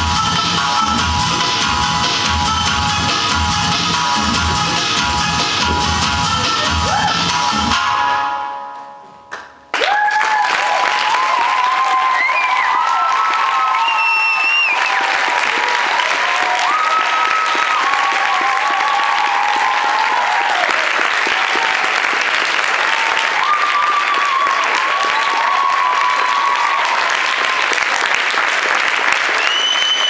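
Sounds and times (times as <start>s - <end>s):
audience applauding: 9.7s - 30.0s
shrill whistles from crowd: 11.8s - 15.1s, 29.2s - 30.0s.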